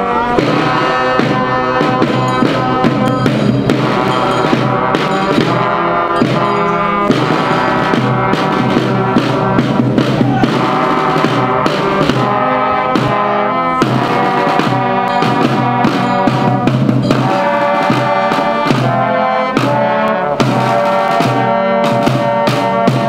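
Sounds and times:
field drums marching rhythm: 0:00.0 - 0:23.0
trumpets and trombones fanfare: 0:00.0 - 0:23.0.

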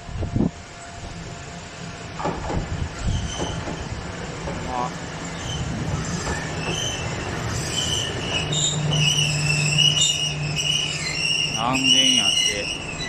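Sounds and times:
railcar low hum: 0:00.0 - 0:13.0
train wheels squealing: 0:03.0 - 0:03.9, 0:05.2 - 0:13.0.

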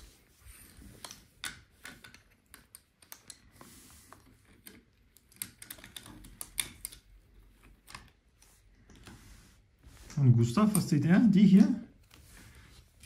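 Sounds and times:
wooden toy train pieces clicking: 0:00.7 - 0:03.5, 0:04.2 - 0:08.1.

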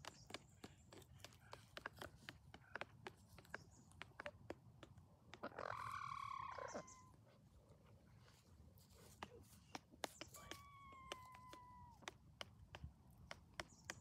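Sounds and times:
hen drawn-out call: 0:05.4 - 0:07.2.

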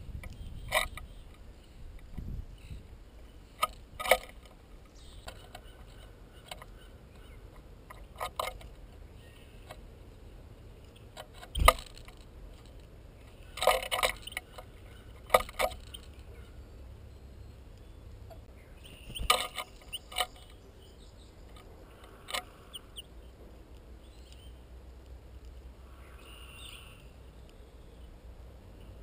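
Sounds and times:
birds pecking at seed feeder: 0:00.1 - 0:29.0
rattling clicks: 0:10.8 - 0:16.3.

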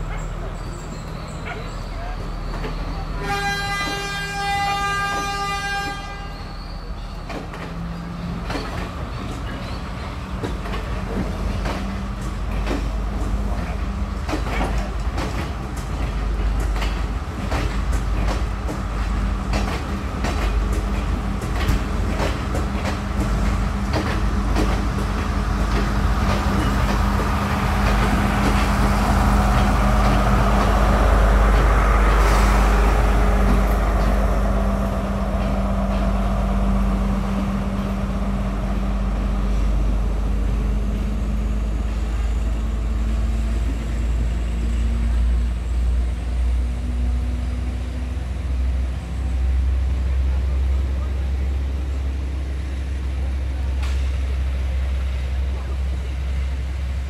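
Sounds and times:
diesel train engine drone: 0:00.0 - 0:57.0
wheels clicking over rail joints: 0:07.1 - 0:32.3.

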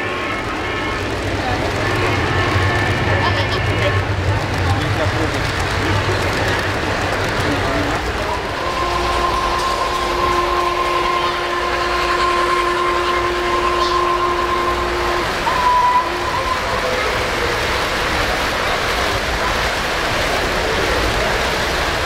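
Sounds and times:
model train cars rolling: 0:00.0 - 0:22.0.

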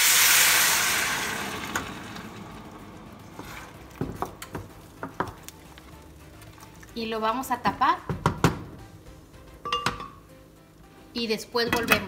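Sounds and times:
salsa sizzling in hot pan: 0:00.0 - 0:07.0
wooden spoon knocking on pan: 0:04.0 - 0:05.4, 0:08.0 - 0:08.8.

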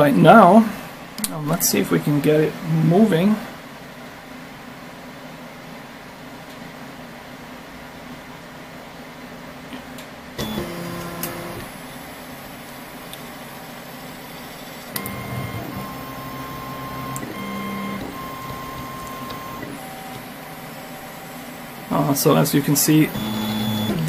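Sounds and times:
stepper motor whine: 0:10.4 - 0:12.0, 0:13.4 - 0:21.7, 0:23.0 - 0:24.0.

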